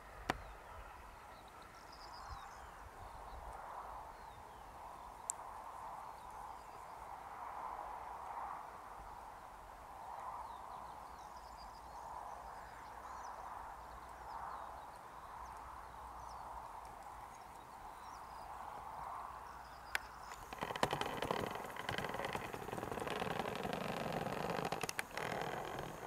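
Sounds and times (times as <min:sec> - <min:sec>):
small birds chirping: 0:10.5 - 0:26.0.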